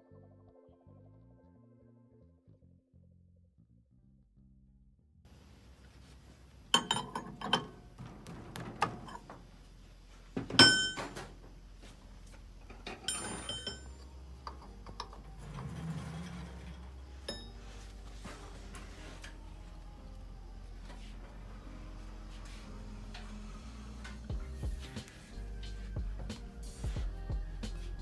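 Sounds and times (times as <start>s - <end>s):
steady low hum: 5.3s - 28.0s
metal clanks and clinks: 6.8s - 9.4s, 10.5s - 11.4s, 12.6s - 17.6s.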